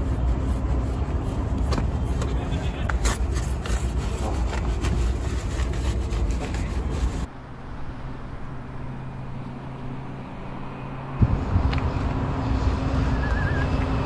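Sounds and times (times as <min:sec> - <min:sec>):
wind rumble on microphone: 0:06.2 - 0:14.0.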